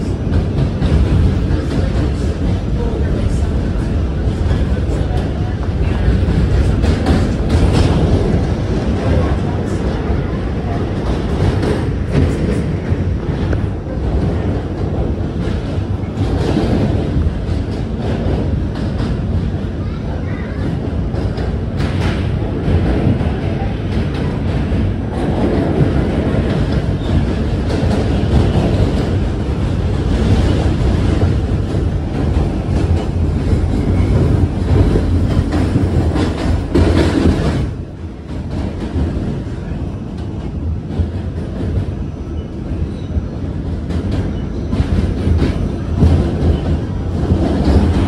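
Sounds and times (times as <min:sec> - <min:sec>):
rail clatter: 0:00.0 - 0:48.0
subway train rumbling on bridge: 0:00.0 - 0:48.0.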